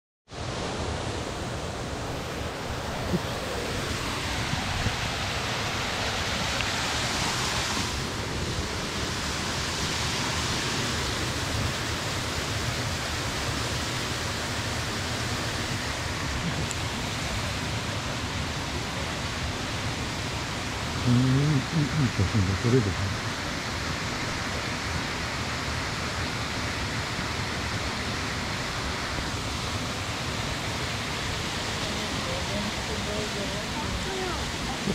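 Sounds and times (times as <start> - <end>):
falling water rushing: 0.3 - 34.9.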